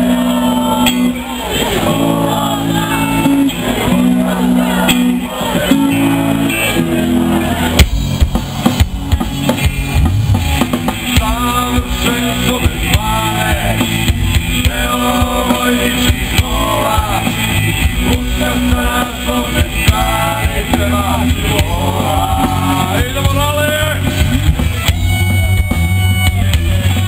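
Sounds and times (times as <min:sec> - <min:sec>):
rock band playing: 0:00.0 - 0:27.0
man singing: 0:11.1 - 0:13.9, 0:14.5 - 0:24.2.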